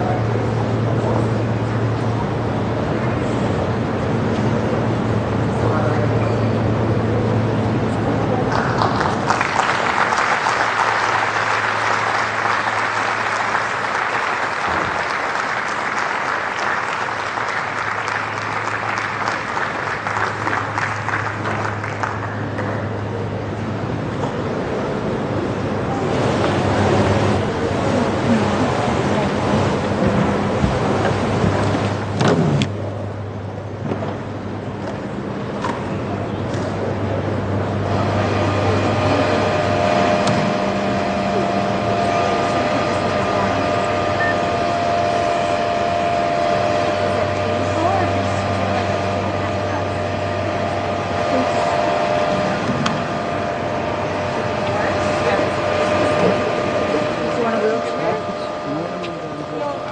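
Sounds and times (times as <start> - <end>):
faint low hum: 0.0 - 59.9
spectators applauding: 8.3 - 23.4.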